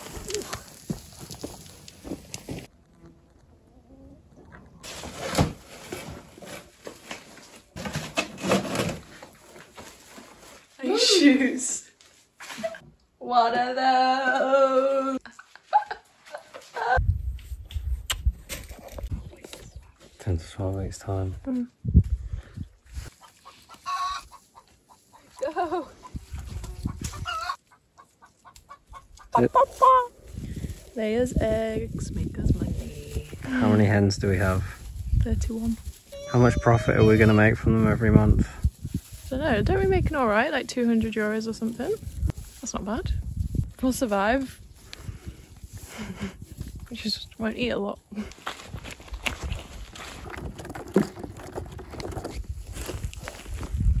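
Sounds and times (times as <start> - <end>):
rustling of paper bags: 4.8 - 11.1, 38.6 - 43.4
hens clucking: 23.2 - 30.1
knocks and clatter of clutter: 50.2 - 52.5.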